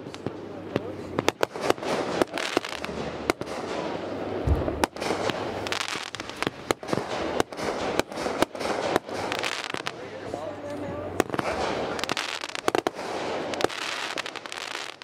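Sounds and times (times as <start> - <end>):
fireworks crackling: 0.0 - 15.0
fireworks launching and bursting: 0.0 - 15.0
deep firework boom: 1.2 - 9.4.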